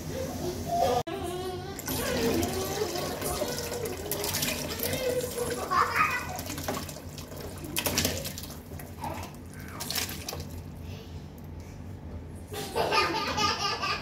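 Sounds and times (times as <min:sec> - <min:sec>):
liquid pouring and splashing: 0:01.8 - 0:10.9.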